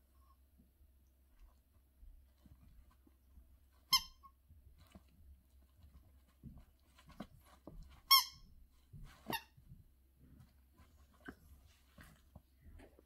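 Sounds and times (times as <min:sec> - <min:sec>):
rubber squeaky toy squeaking: 0:03.8 - 0:04.3, 0:08.0 - 0:08.6, 0:09.2 - 0:09.6.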